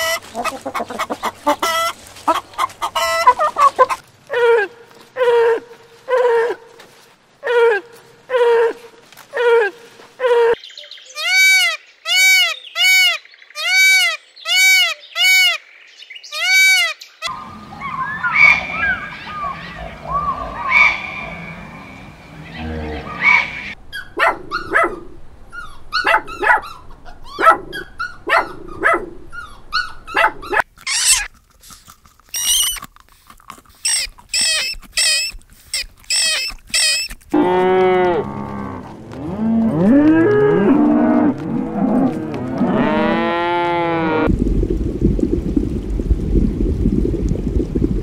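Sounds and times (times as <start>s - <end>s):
high-pitched animal cries: 11.2s - 15.6s, 16.3s - 19.8s, 29.4s - 31.3s, 32.3s - 32.8s, 33.8s - 37.2s
long rising and falling animal calls: 16.4s - 23.8s.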